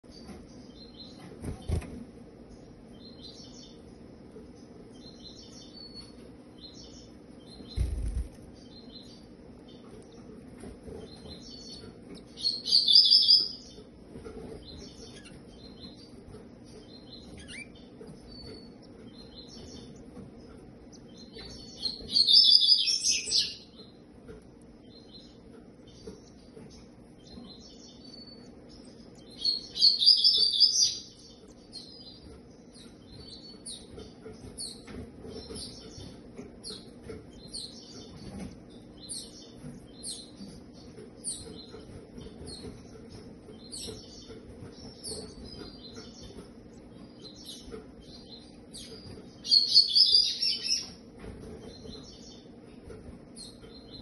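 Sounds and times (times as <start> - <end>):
nestlings begging chirps: 0.1 - 54.0.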